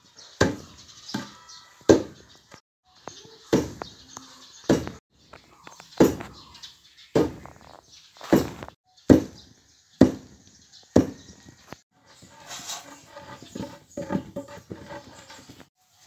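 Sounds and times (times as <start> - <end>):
wooden pestle pounding in mortar: 10.0 - 10.4.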